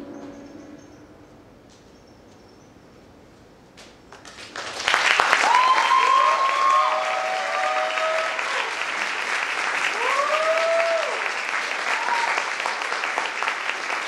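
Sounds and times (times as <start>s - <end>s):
audience applause: 4.1s - 14.0s
voices cheering: 5.2s - 8.9s, 9.7s - 13.0s.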